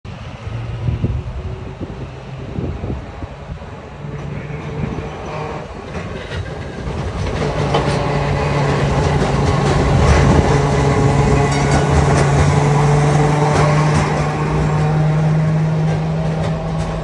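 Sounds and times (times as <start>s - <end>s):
electric streetcar humming: 0.1s - 17.0s
steel wheels clicking on rails: 4.0s - 17.0s.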